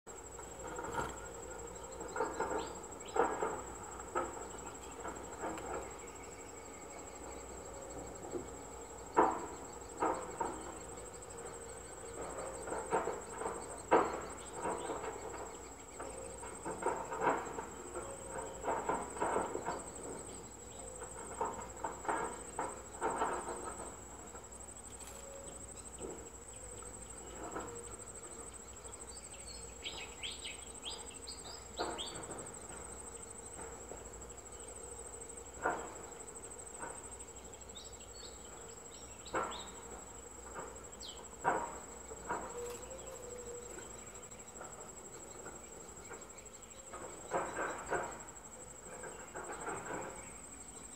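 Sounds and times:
crickets trilling: 0:00.1 - 0:50.9.

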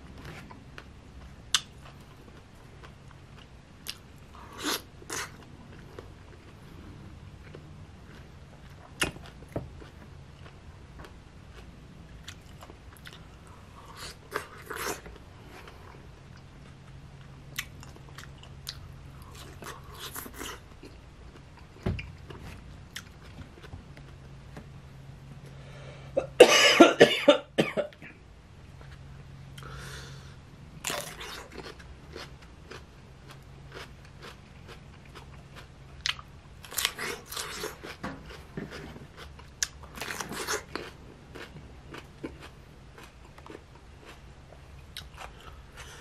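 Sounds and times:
chewing crisp fruit: 0:00.2 - 0:24.4, 0:28.7 - 0:46.0
person coughing: 0:26.2 - 0:28.1.

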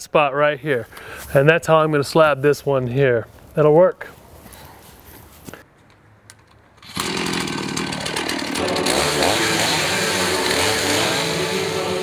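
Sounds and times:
chainsaw cutting log: 0:06.8 - 0:12.0.

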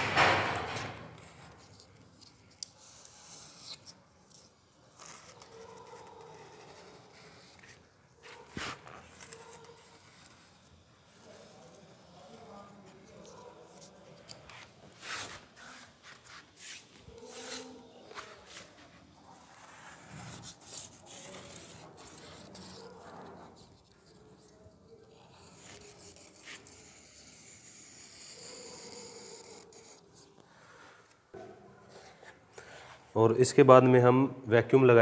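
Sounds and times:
knife blade scraping adhesive: 0:01.2 - 0:07.8, 0:16.6 - 0:17.8, 0:19.4 - 0:30.3.

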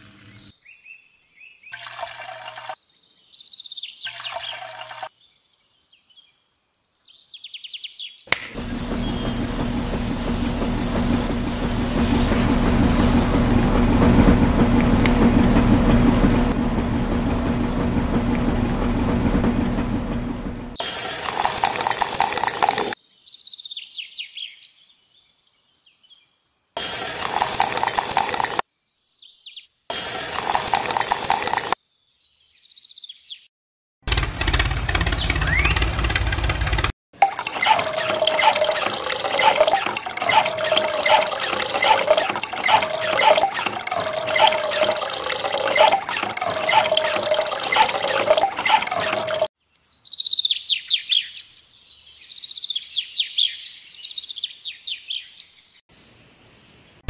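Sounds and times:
loud bursts of noise: 0:08.4 - 0:23.0
small motor humming: 0:08.4 - 0:23.0, 0:26.8 - 0:28.6, 0:29.9 - 0:31.8, 0:34.1 - 0:49.5.

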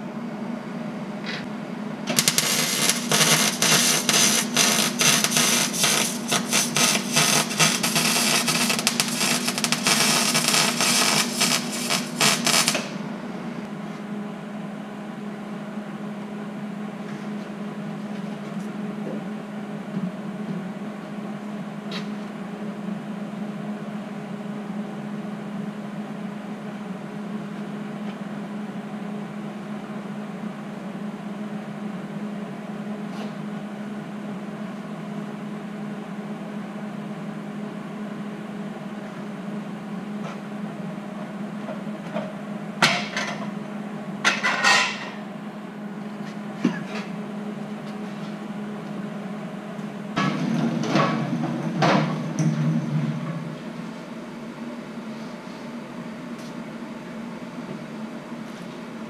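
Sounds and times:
electrical hum: 0:00.0 - 0:44.3.

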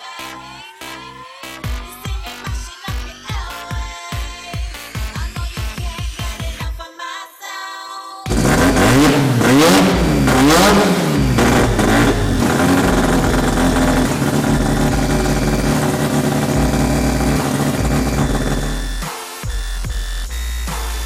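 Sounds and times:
car engine revving: 0:08.3 - 0:19.1.

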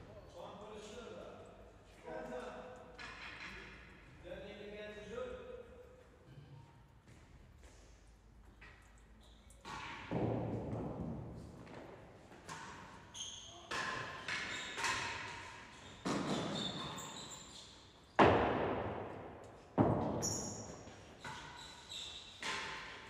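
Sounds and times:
ball hitting walls with echo: 0:02.4 - 0:03.9, 0:08.6 - 0:23.0
ball struck by racquets: 0:13.7 - 0:16.9, 0:18.2 - 0:20.6.

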